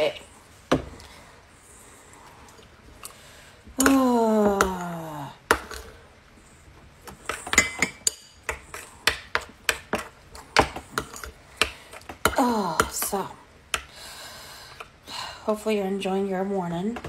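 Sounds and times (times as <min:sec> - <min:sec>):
person humming: 0:03.8 - 0:05.4.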